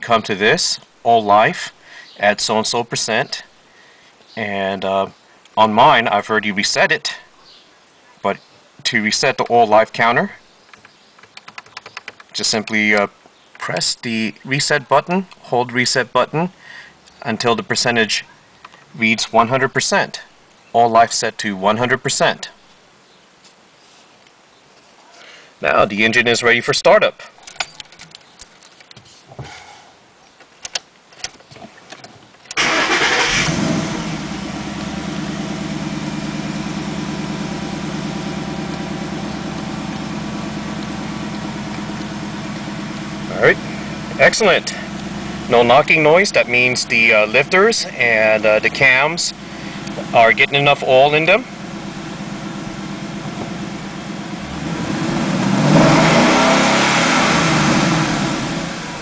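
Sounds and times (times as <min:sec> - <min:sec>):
car engine starting and idling: 0:32.6 - 0:59.0.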